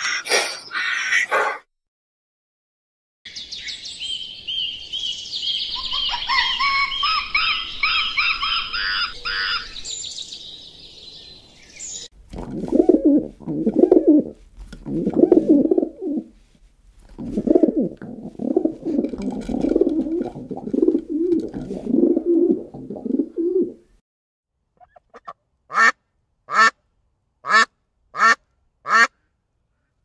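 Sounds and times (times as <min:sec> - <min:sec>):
dove cooing: 0:12.3 - 0:16.4, 0:17.1 - 0:23.9
duck quacking: 0:24.8 - 0:26.8, 0:27.4 - 0:29.2.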